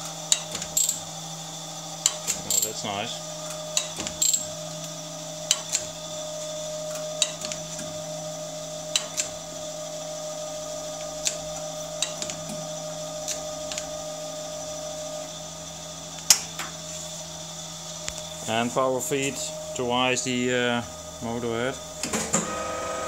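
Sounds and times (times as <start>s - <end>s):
feed mechanism clicks: 8.9s - 9.4s, 11.2s - 12.6s
surface grinder humming: 22.4s - 23.0s.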